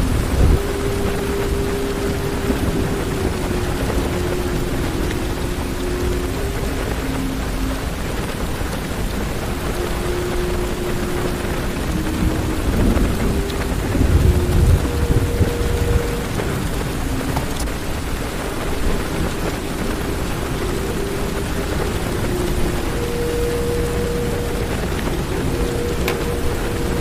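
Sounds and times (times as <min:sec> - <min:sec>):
heavy rain on car roof: 0:00.0 - 0:27.0
thunder rumble: 0:00.0 - 0:27.0.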